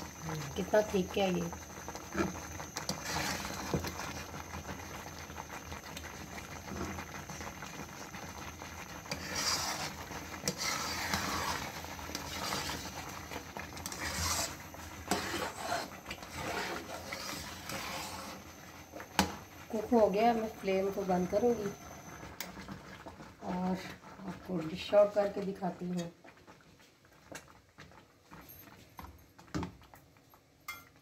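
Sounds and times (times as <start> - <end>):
metal spatula scraping a wok: 2.9 - 3.8, 9.1 - 13.1, 13.8 - 18.5.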